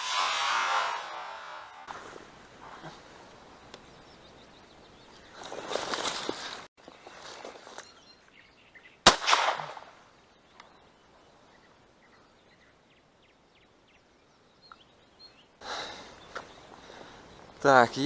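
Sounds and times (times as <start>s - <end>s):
dry branches rustling: 0.0s - 8.6s
shotgun shot with echo: 9.0s - 9.9s.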